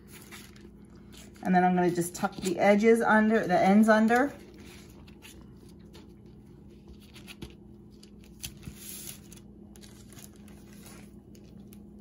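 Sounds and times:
parchment paper crinkling: 0.0 - 2.8, 4.0 - 12.0
faint steady hum: 0.0 - 12.0.

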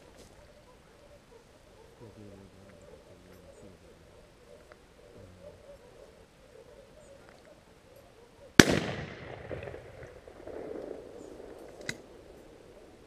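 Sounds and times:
shotgun shot echoing: 8.6 - 12.6.

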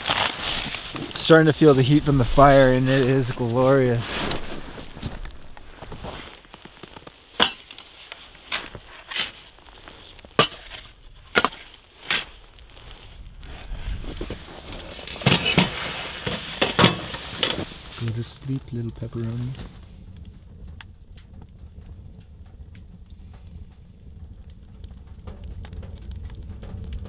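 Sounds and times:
shovel crunching into snow: 0.0 - 18.2.

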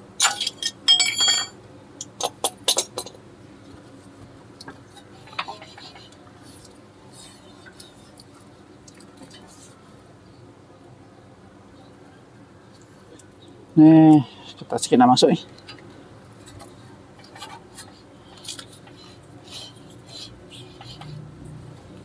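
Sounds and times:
metal tools clinking: 0.2 - 1.6.

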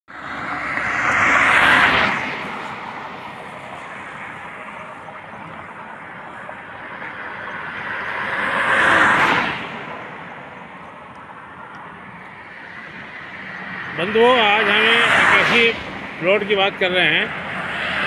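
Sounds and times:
cars passing on a highway: 0.1 - 18.0
steady traffic hiss: 0.2 - 18.0.

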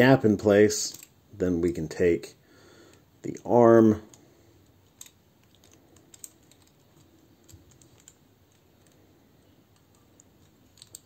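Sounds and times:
plastic toy parts clicking: 0.8 - 1.2, 4.1 - 11.0.

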